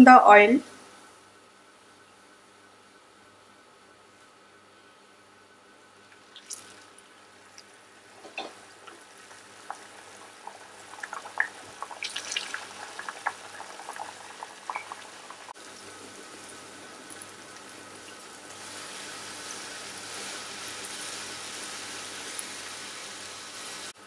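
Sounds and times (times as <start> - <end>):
dough deep-frying in hot oil: 5.6 - 24.0.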